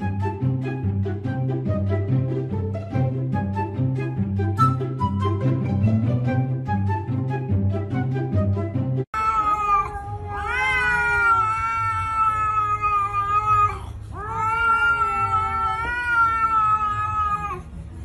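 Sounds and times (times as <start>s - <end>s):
cat yowling: 9.2s - 17.7s.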